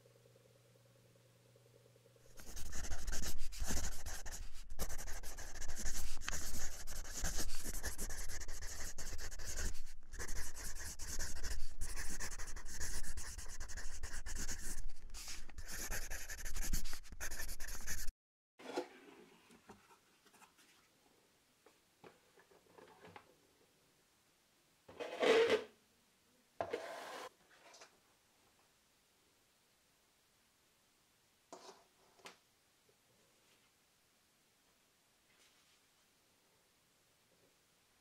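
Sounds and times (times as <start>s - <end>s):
marker pen scribbling on whiteboard: 2.3s - 18.1s.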